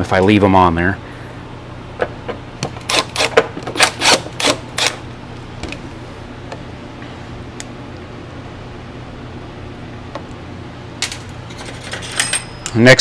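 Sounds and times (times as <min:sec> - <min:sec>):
small parts clicking and clattering: 0:11.0 - 0:12.8.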